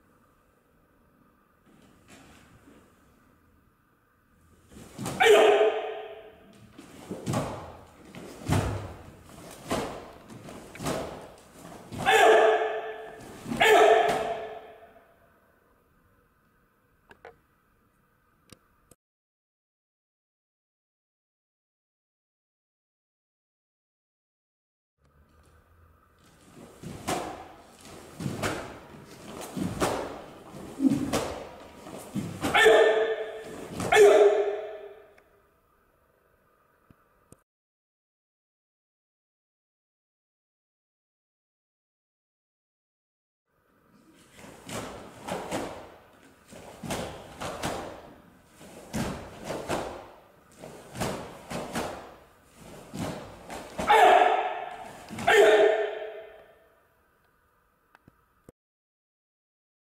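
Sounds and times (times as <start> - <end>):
footsteps on wooden floor: 6.7 - 12.1, 26.3 - 32.5
karate uniform snapping: 7.0 - 14.7, 26.6 - 34.9, 46.5 - 56.2.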